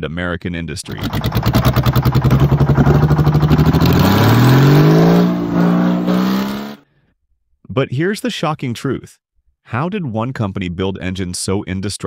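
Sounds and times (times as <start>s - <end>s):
diesel generator engine running: 0.9s - 6.7s.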